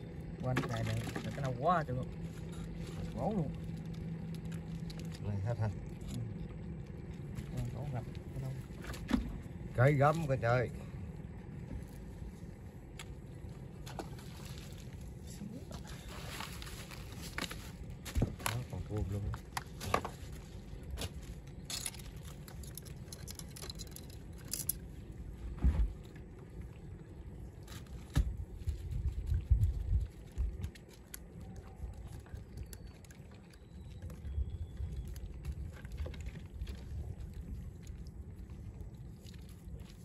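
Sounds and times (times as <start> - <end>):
low steady rumble: 0.0 - 40.0
rustling of net and plastic: 15.8 - 23.9.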